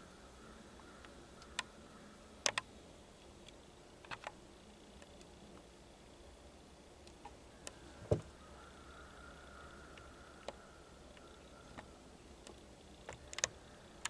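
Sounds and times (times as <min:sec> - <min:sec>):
sharp clicks: 0:01.0 - 0:01.7, 0:02.4 - 0:05.7, 0:09.9 - 0:14.0.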